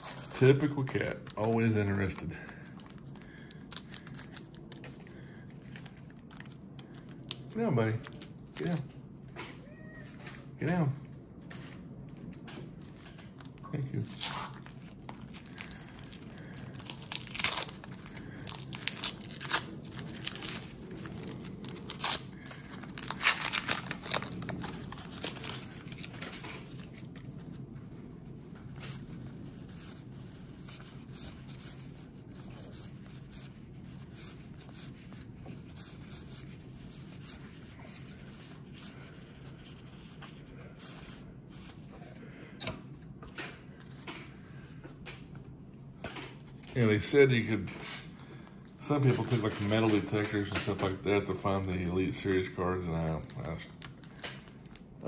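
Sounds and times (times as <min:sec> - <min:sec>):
cards rustling and clicking: 0:00.0 - 0:08.8, 0:11.5 - 0:46.8, 0:49.0 - 0:54.9
paper wrapper tearing: 0:00.0 - 0:08.8, 0:13.5 - 0:27.5.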